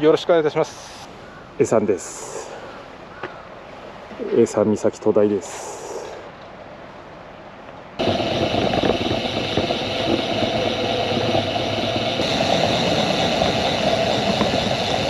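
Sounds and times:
bicycle tyres on paved road: 8.0 - 15.0
wind on microphone: 8.0 - 15.0.

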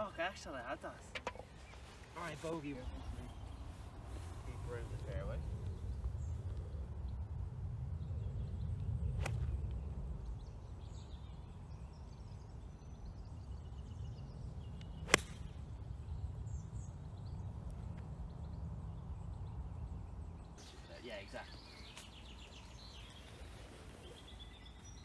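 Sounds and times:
wind rumble on microphone: 1.5 - 20.6
golf club striking ball: 14.8 - 15.6.

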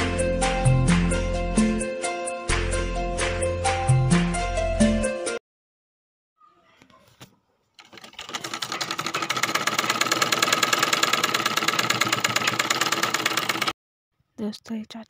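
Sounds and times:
sewing machine stitching: 7.8 - 13.8.

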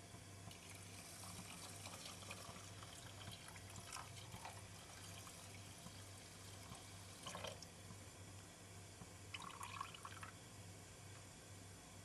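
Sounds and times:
low steady hum: 0.0 - 12.0
water trickling into a pot: 0.5 - 7.8, 9.3 - 10.4.

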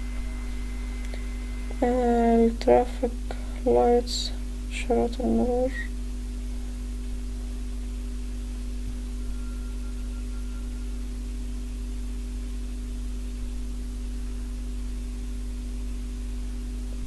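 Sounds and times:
faint hiss: 0.0 - 4.5
electrical hum: 0.0 - 17.0.

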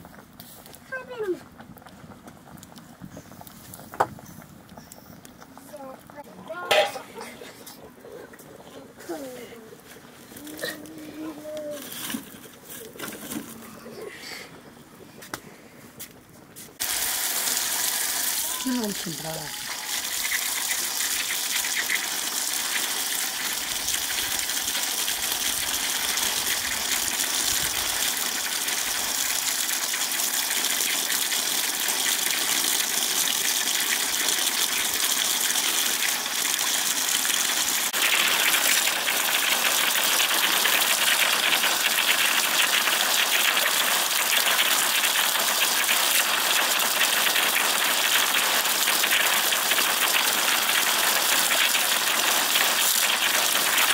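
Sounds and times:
tap water gushing: 16.8 - 53.9
water splashing onto leafy greens: 16.8 - 53.9.

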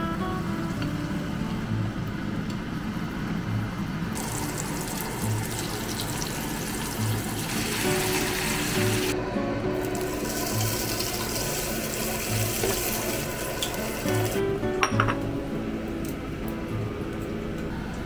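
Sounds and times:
background music with slow beat: 0.0 - 18.0
fish sizzling in oil: 4.2 - 9.2, 9.8 - 14.6.

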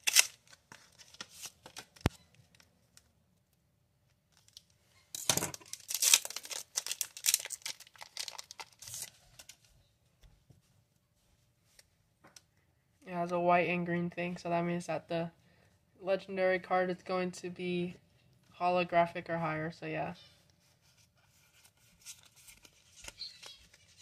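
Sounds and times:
foil wrapper tearing and crinkling: 0.0 - 1.9, 5.5 - 9.6.

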